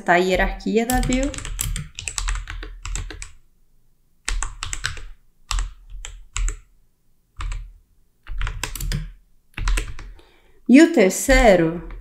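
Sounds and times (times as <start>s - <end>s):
keyboard typing clicks: 0.9s - 3.4s, 4.3s - 6.7s, 8.3s - 10.1s.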